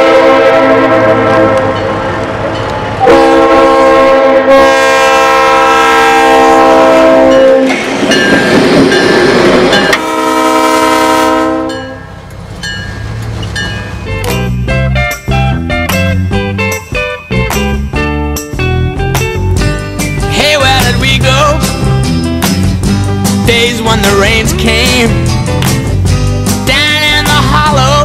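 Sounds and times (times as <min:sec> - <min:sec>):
locomotive horn blasts: 0:00.0 - 0:02.2, 0:03.0 - 0:07.7, 0:09.9 - 0:12.1
train engine and wheel noise: 0:00.0 - 0:28.0
train wheels clicking: 0:01.2 - 0:03.0.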